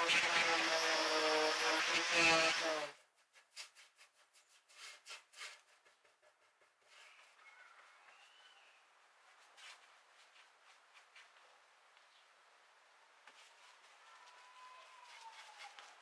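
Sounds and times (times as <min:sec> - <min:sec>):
sander motor running: 0:00.0 - 0:02.9
light taps and rubbing: 0:03.0 - 0:08.3, 0:13.2 - 0:16.0.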